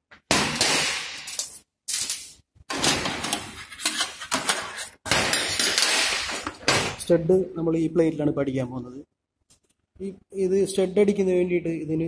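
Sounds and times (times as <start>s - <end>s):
metal studs clattering on steel bench: 1.3s - 6.9s.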